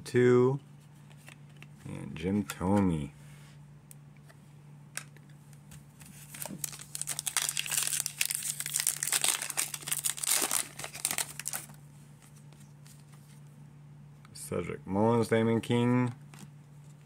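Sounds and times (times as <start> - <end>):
wrapper tearing and crackling: 6.3 - 11.8.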